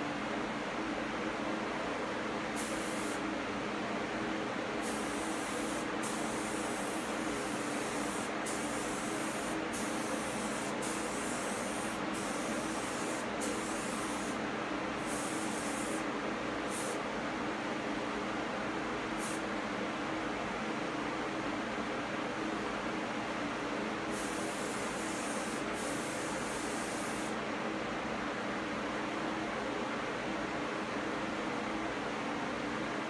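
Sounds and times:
spray gun hissing: 2.6s - 3.2s, 4.8s - 14.4s, 15.0s - 16.1s, 16.7s - 17.0s, 19.2s - 19.4s, 24.1s - 27.4s.

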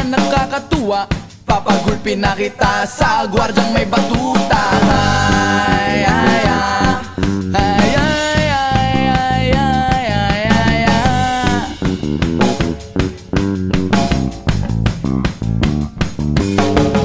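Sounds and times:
upbeat band music with drums: 0.0s - 17.0s.

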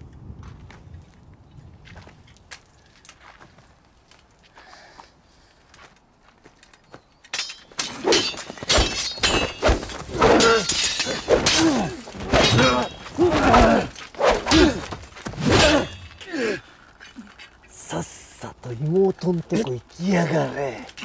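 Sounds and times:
sword slashes and impacts: 7.5s - 16.0s
men yelling and grunting: 9.7s - 17.4s.

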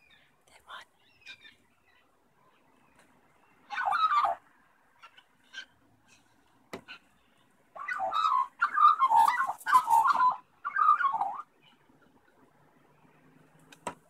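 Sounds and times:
magpie raspy calls: 3.6s - 4.4s, 5.0s - 6.2s, 6.9s - 11.5s.

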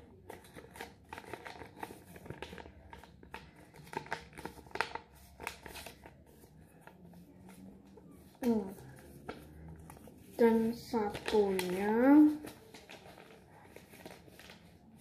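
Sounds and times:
paper rustling and crinkling: 0.0s - 15.0s.

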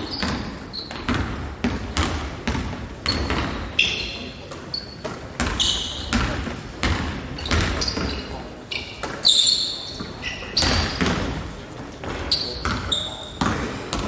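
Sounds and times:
basketball bouncing on wood floor: 0.0s - 3.7s, 4.9s - 8.2s, 10.0s - 14.0s
sneaker squeaks: 0.0s - 14.0s.

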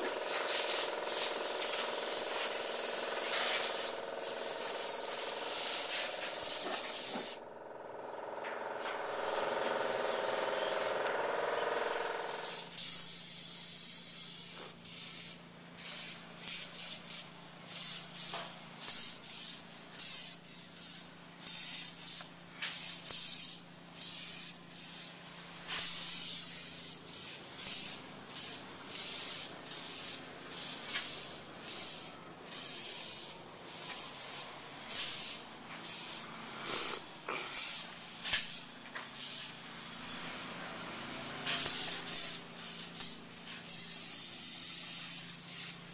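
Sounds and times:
spray gun hissing: 0.0s - 7.4s, 8.8s - 45.9s.

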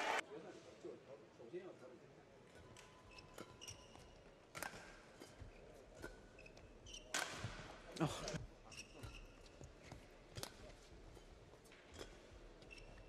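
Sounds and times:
shoe squeaks on court: 3.1s - 4.2s, 6.3s - 7.5s, 8.7s - 9.6s, 12.6s - 13.0s
rackets striking shuttlecock: 3.4s - 5.4s, 7.1s - 7.7s.

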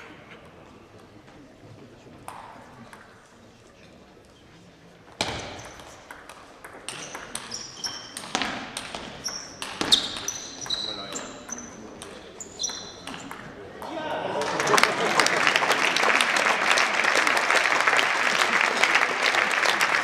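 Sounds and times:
table tennis ball hits: 5.1s - 14.0s.

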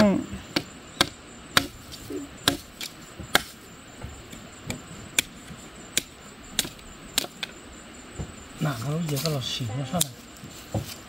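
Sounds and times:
knife chopping bamboo: 0.0s - 3.6s, 4.3s - 7.5s.

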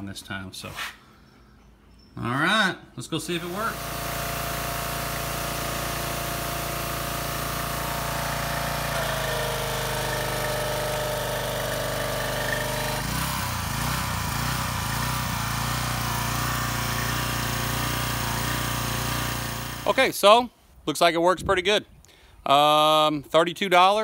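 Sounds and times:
pressure washer engine running: 3.3s - 20.1s
high-pressure water spray: 3.4s - 20.1s.

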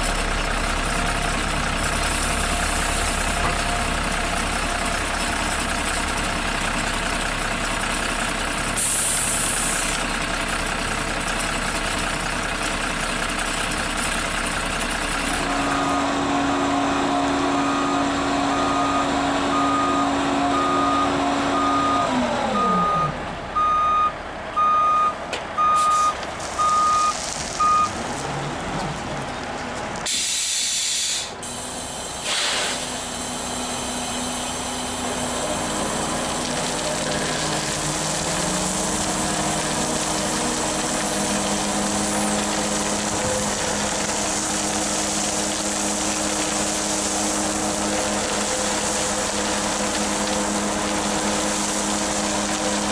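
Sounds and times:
diesel truck engine running: 0.0s - 52.9s
air brakes hissing: 8.8s - 9.9s, 30.1s - 34.1s
back-up alarm beeping: 17.6s - 28.0s.

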